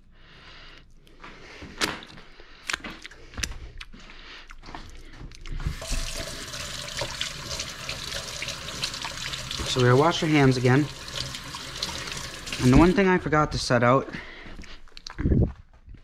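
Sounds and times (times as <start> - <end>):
tap water running into sink: 5.6 - 13.0.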